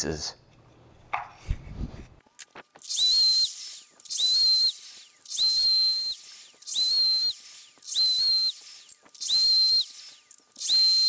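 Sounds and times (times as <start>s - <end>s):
miter saw whining: 2.7s - 11.0s.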